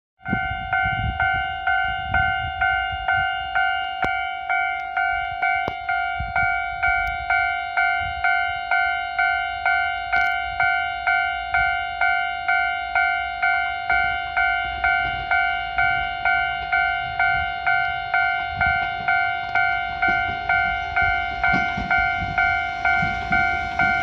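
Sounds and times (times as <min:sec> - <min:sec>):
electronic crossing bell dinging: 0:00.2 - 0:24.0.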